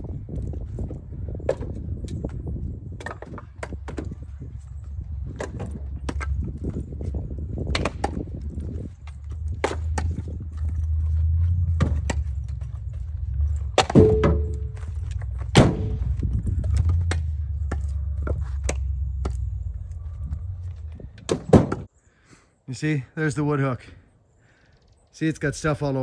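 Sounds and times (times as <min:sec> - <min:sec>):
low rumble: 0:04.2 - 0:21.3
firewood knocking on truck bed: 0:13.7 - 0:19.4, 0:21.2 - 0:21.9.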